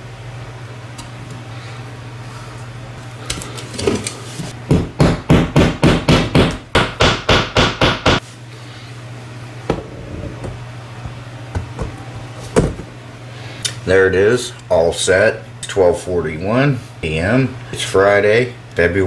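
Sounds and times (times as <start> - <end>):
hammer striking nail: 4.7 - 8.2.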